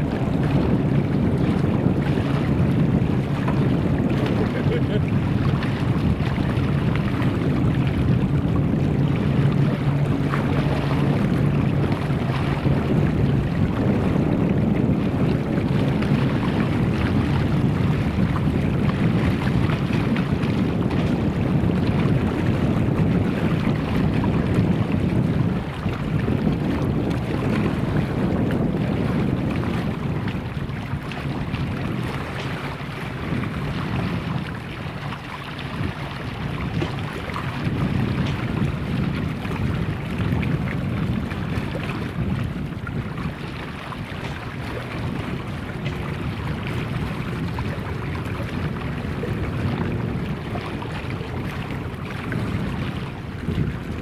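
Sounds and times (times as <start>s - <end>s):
distant low propeller plane drone: 0.0s - 26.2s
wind on microphone: 0.0s - 54.0s.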